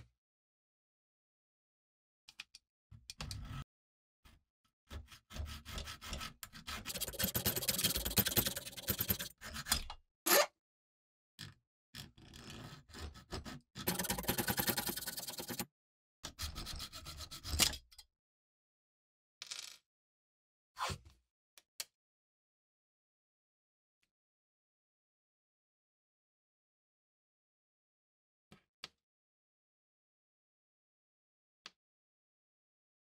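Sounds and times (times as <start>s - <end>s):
hacksaw rasping on metal: 4.9s - 9.9s, 12.9s - 15.6s.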